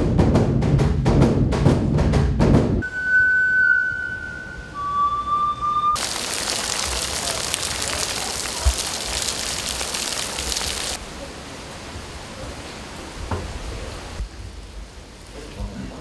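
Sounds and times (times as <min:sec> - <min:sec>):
faint hiss: 0:06.0 - 0:16.0
steady rain: 0:06.0 - 0:16.0.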